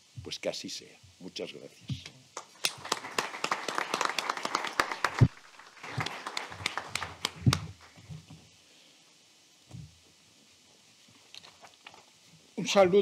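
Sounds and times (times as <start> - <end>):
audience applause: 2.4 - 8.0.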